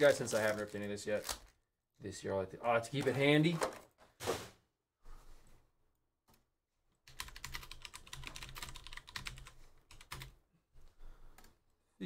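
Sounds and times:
computer keyboard typing: 7.1 - 10.4.

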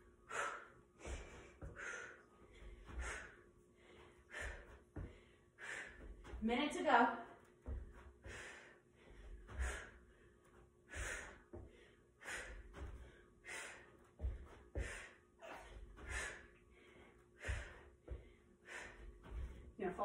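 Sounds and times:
woman breathing hard: 0.0 - 6.4, 7.6 - 19.8
bare feet thumping on cushion: 4.3 - 6.8, 7.4 - 8.5, 9.1 - 13.2, 14.1 - 16.4, 17.4 - 20.0.

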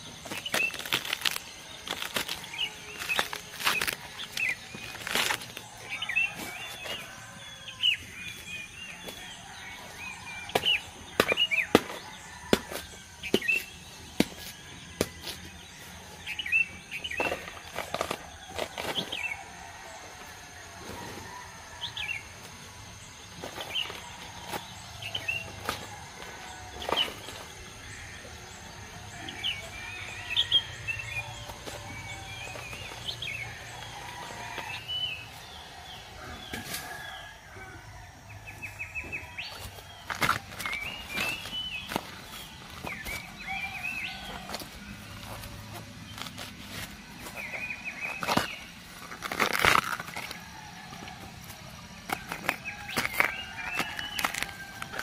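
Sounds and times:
dry bamboo litter rustling: 0.0 - 9.9, 38.7 - 55.0
bamboo husks snapping and tearing: 0.1 - 6.0, 39.5 - 55.0.

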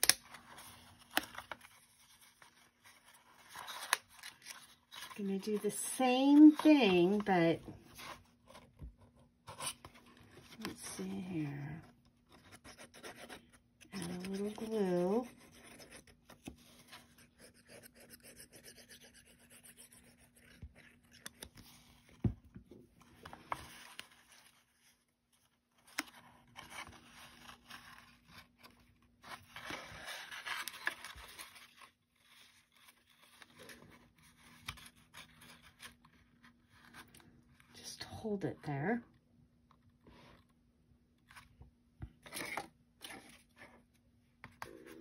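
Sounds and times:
paper rubbing and scraping: 12.4 - 21.2.

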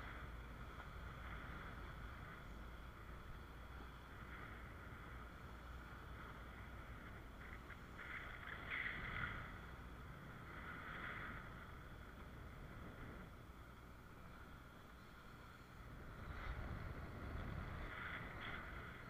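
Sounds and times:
distant speedboat engine drone: 0.0 - 19.0
wind rumble on microphone: 0.0 - 19.0.

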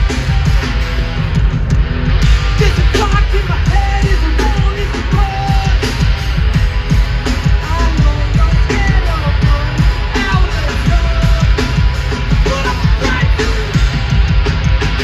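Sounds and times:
punk band playing live: 0.0 - 15.0
person singing: 2.6 - 6.0, 7.6 - 13.8.

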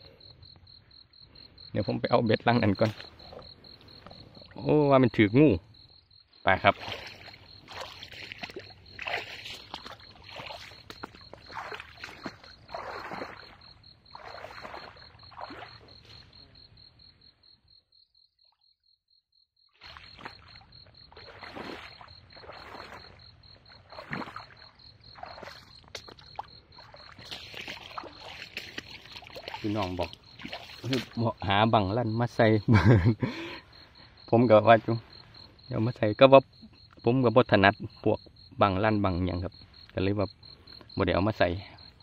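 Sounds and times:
high insect trill: 0.0 - 42.0
footsteps splashing through water: 2.7 - 4.6, 6.6 - 16.3, 19.8 - 31.4.

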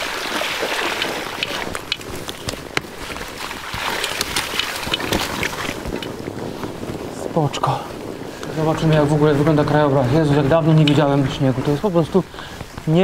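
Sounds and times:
bike tyres hissing through snow: 0.0 - 10.6, 12.2 - 13.0
sharp clicks and crunches: 0.9 - 6.2.

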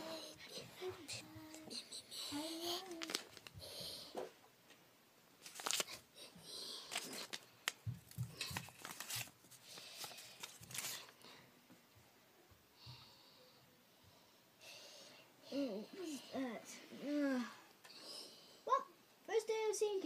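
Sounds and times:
paper figures rustling: 2.5 - 3.6, 5.4 - 6.0, 6.8 - 11.2.

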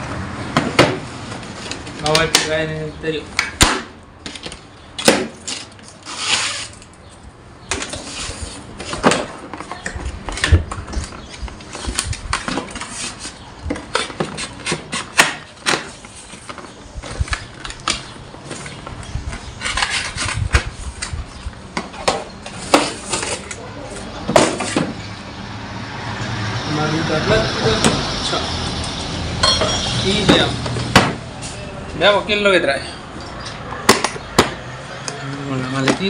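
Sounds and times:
cardboard rustling and scraping: 7.7 - 25.0.

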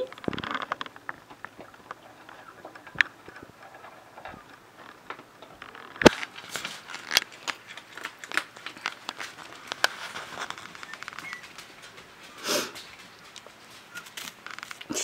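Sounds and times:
puppy paws tapping: 0.0 - 15.0.

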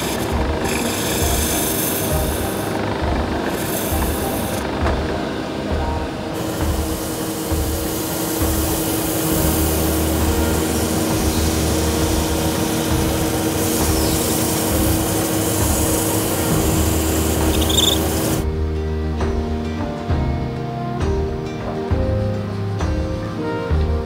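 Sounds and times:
sandpaper sanding wood: 0.0 - 4.8, 6.4 - 18.4
lathe motor hum: 0.0 - 18.4.

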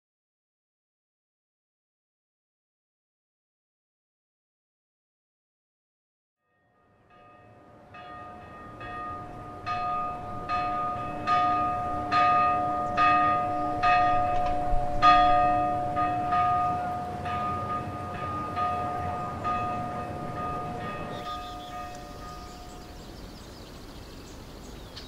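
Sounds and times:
church bell ringing: 6.4 - 23.6.

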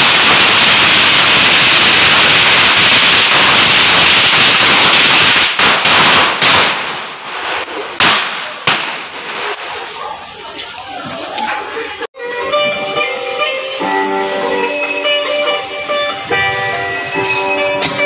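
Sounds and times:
string of firecrackers popping: 0.0 - 10.0.

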